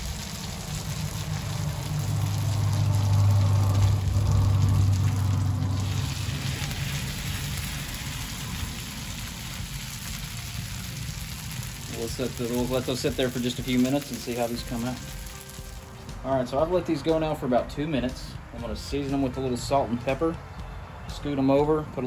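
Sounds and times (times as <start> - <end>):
low rumble: 0.0 - 12.5
food sizzling on a griddle: 0.0 - 16.1.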